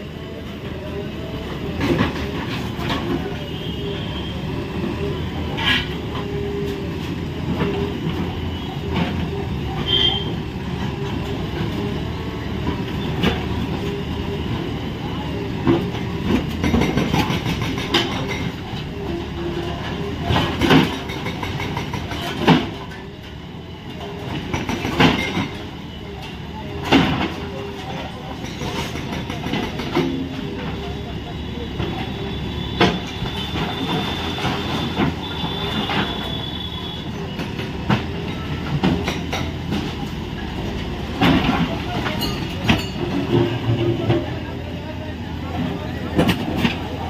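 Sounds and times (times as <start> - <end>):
diesel engines running: 0.0 - 47.0
demolition knocks and clanks: 41.0 - 44.3.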